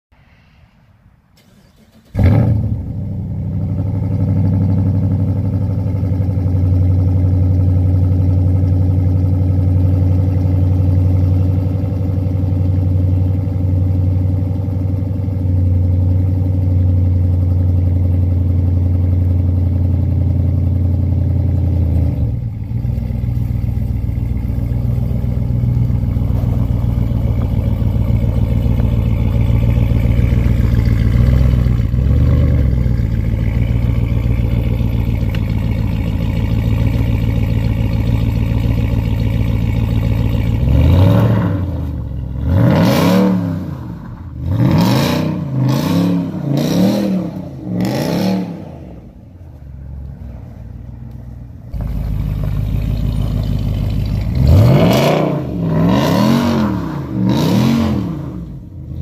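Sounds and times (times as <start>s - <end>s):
vee-eight engine starting: 1.3s - 3.2s
engine idling with deep exhaust: 2.2s - 44.9s, 48.8s - 57.4s.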